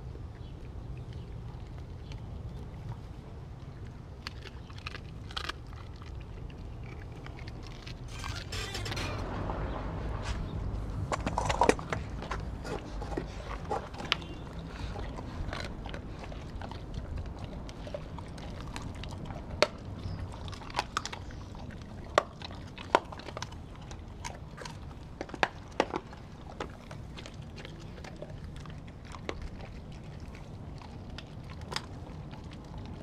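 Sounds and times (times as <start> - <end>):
steady low rumble: 0.0 - 22.2
dogs chewing and biting: 0.0 - 33.0.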